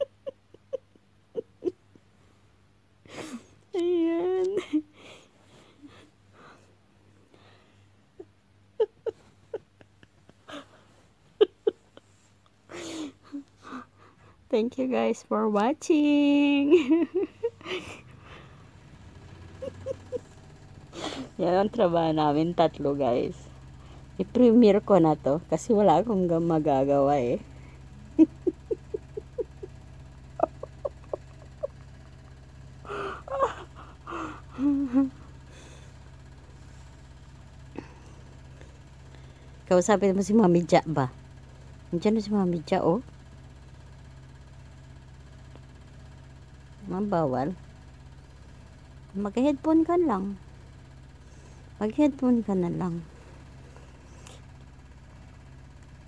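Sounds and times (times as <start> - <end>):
woman laughing through phone speaker: 0.0 - 1.9, 8.8 - 12.2, 19.6 - 20.2, 28.0 - 31.9, 32.9 - 35.8
girl whimpering sobs: 32.9 - 35.8.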